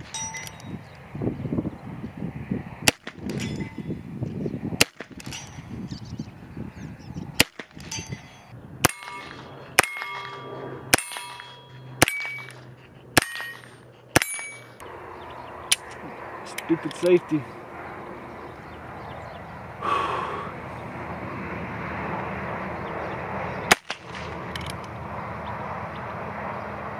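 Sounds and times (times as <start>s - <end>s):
metallic ring of steel target: 0.0s - 0.8s, 3.0s - 4.0s, 4.8s - 5.9s, 7.4s - 14.8s.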